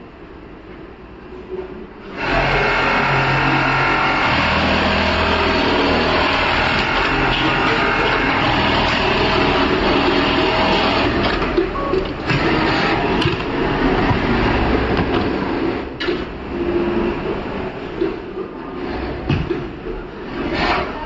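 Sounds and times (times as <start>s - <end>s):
sewing machine running: 2.1s - 17.8s.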